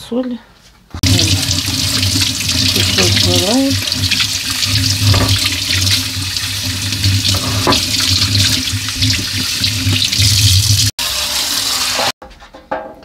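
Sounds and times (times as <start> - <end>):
water splashing over fish: 1.0 - 10.9
kitchen tap running: 1.0 - 12.1.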